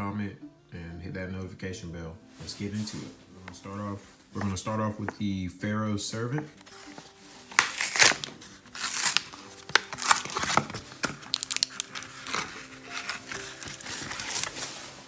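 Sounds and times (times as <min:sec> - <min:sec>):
foil pack tearing and crinkling: 0:07.5 - 0:15.0.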